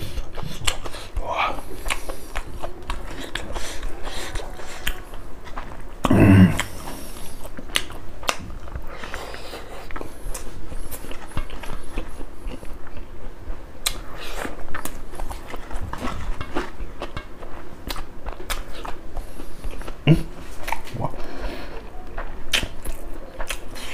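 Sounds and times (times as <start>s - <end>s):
wet chewing with lip smacks: 0.0s - 13.1s, 13.8s - 20.0s, 21.8s - 23.9s
low vocal sound: 6.0s - 7.0s.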